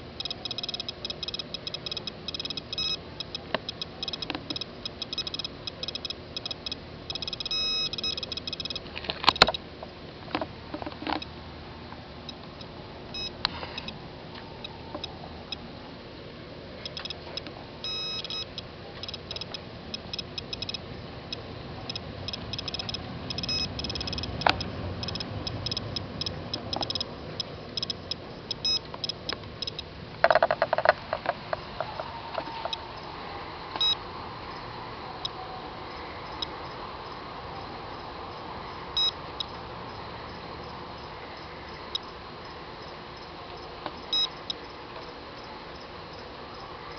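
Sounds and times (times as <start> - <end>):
geiger counter clicking: 0.0 - 9.7, 12.3 - 14.0, 16.9 - 33.1, 33.8 - 34.0, 39.0 - 39.6, 43.9 - 45.1.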